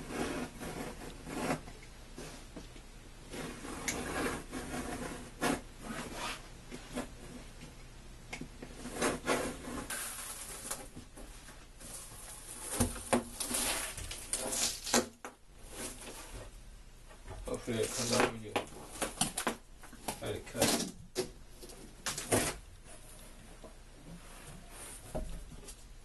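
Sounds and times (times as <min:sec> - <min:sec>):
utility knife scraping hardboard: 0:00.0 - 0:01.6, 0:03.3 - 0:07.1, 0:08.8 - 0:10.8.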